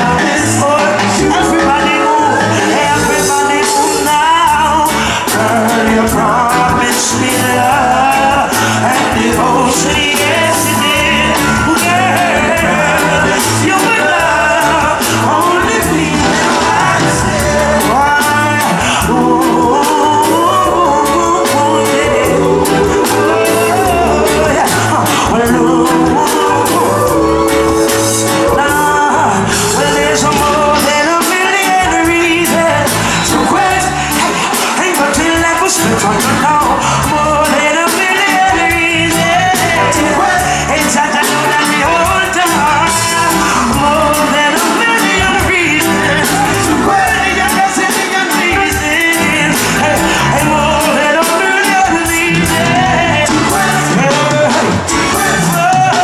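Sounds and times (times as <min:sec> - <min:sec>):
male singer: 0:00.0 - 0:56.0
reggae band playing: 0:00.0 - 0:56.0.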